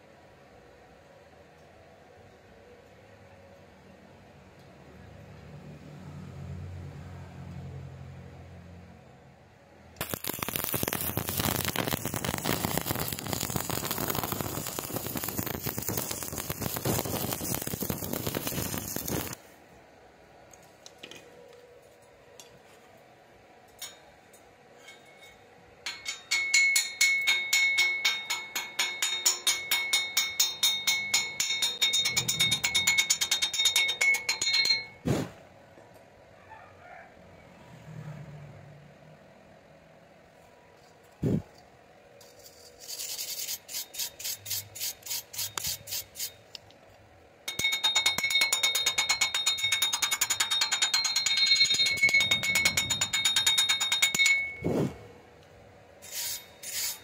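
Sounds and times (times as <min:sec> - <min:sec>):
welding arc crackling and hissing: 0:10.0 - 0:19.6, 0:42.3 - 0:46.4
metal tapping with ringing tone: 0:23.7 - 0:35.0, 0:47.4 - 0:54.7.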